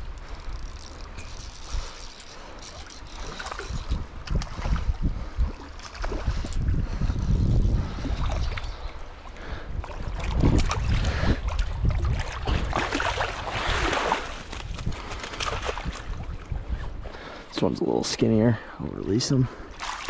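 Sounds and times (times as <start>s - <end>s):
wind buffeting microphone: 0.0s - 19.7s
fish splashing in stream water: 12.0s - 16.1s, 19.8s - 20.0s.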